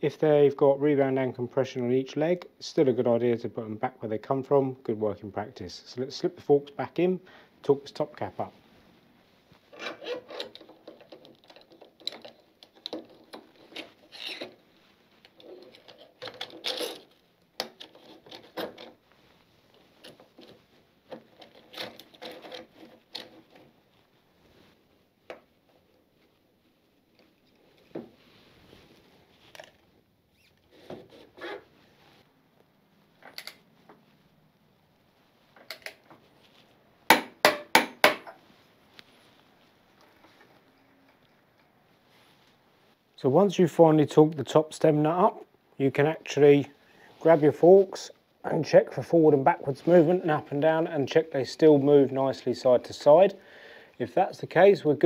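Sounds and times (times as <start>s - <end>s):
metal parts scraping and knocking: 9.7s - 14.6s, 15.2s - 19.0s, 20.0s - 23.6s.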